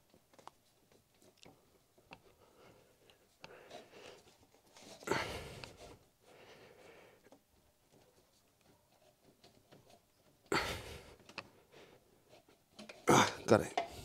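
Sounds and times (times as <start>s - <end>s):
faint clicks and rustling: 0.0s - 14.0s.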